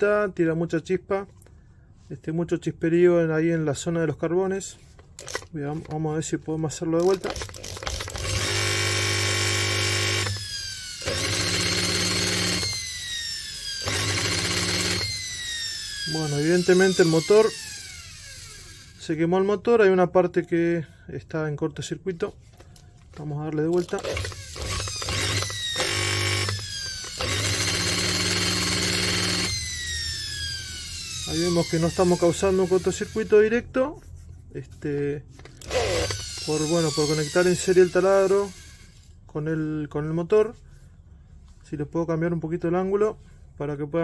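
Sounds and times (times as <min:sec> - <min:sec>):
electric motor buzzing hum: 0:07.0 - 0:19.0, 0:23.8 - 0:33.5, 0:35.6 - 0:39.1.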